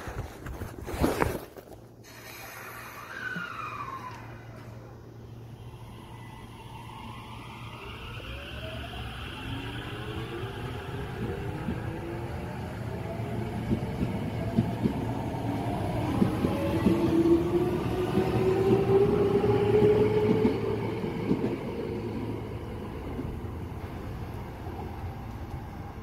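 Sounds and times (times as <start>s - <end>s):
electric train motor whine: 2.8s - 14.0s.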